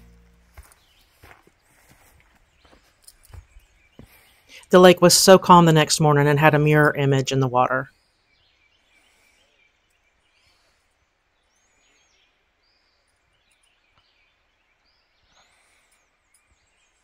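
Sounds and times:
faint bird chirps: 7.9 - 17.0.

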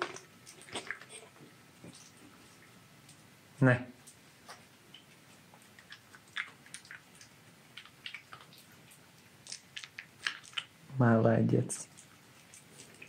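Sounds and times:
fox chewing crunchy food: 4.0 - 10.9, 11.8 - 13.0.

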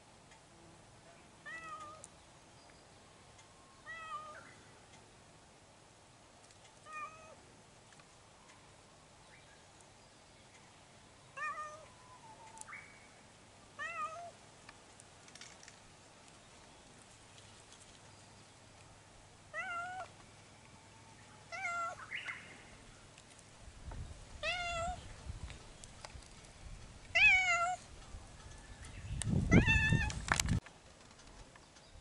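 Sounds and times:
cat meowing: 19.5 - 20.1, 24.4 - 25.0, 27.1 - 27.8.

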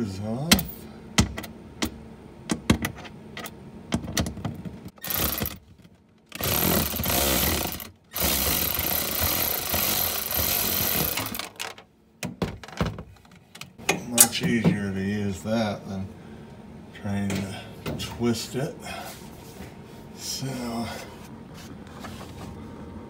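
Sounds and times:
power driver running: 5.0 - 5.6, 6.3 - 11.8.

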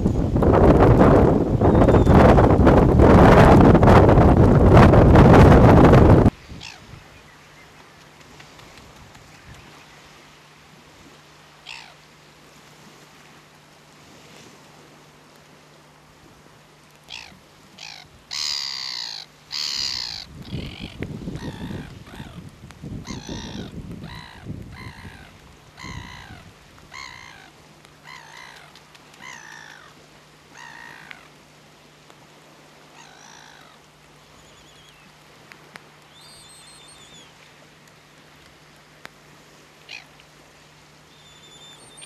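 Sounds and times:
terns giving harsh calls: 17.1 - 22.3
faint high chirps: 36.1 - 37.3, 41.1 - 42.0.

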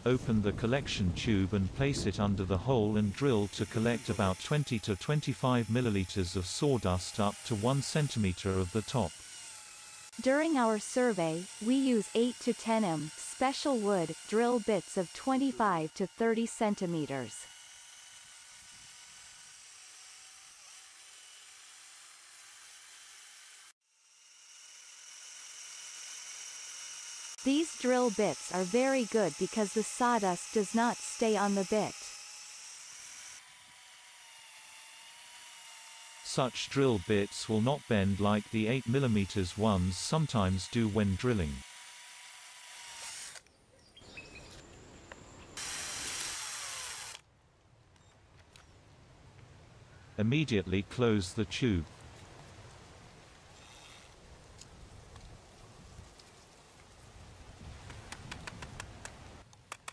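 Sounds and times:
cordless drill boring into wood: 3.1 - 43.5, 45.6 - 47.2, 53.5 - 54.2.

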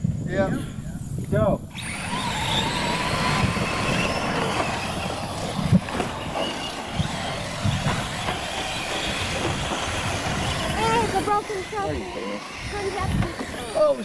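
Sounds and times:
steady rushing noise: 0.0 - 14.0
faint motor whine: 1.6 - 14.0
short thumps: 3.8 - 11.4.

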